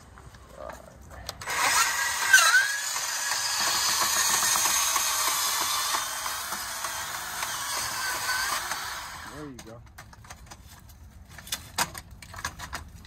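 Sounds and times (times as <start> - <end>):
bandsaw cutting metal tubing: 1.4 - 9.5
bandsaw squeal: 1.6 - 3.8.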